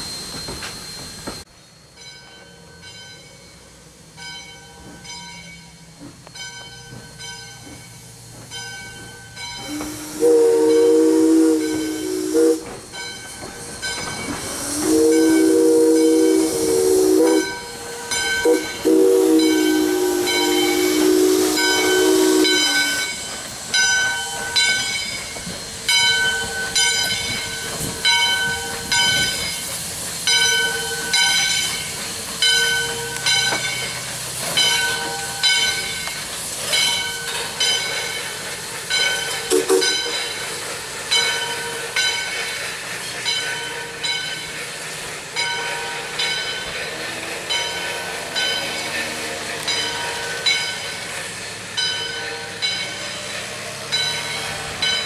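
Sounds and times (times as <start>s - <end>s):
steam hissing: 2.6s - 55.0s
steam whistle blasts: 9.6s - 12.8s, 14.3s - 23.3s, 39.3s - 40.4s.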